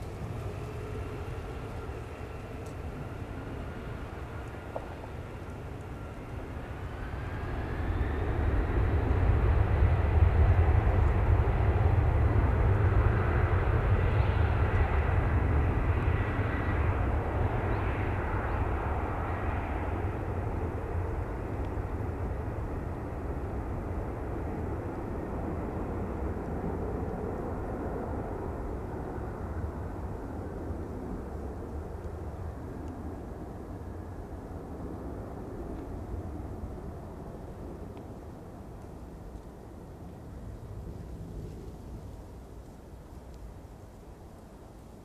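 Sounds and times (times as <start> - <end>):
jet engines spooling up: 0.0 - 22.0
rising jet whine: 0.0 - 23.2
deep jet rumble: 0.0 - 45.0.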